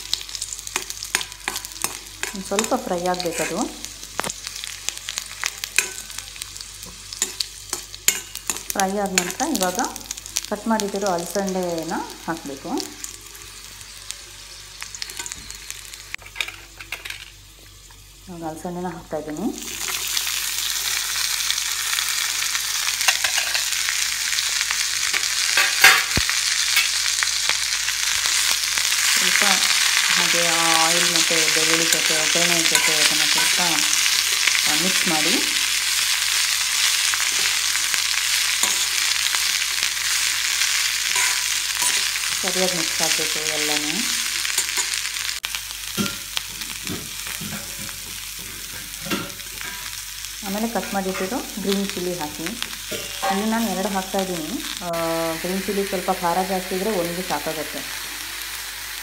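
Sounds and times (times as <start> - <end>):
beans sizzling in hot oil: 0.0 - 59.0
steel spoon scraping a pan: 0.7 - 3.6, 5.4 - 6.2, 7.1 - 9.4, 23.0 - 23.8, 28.3 - 35.2, 36.4 - 42.4, 52.9 - 53.4.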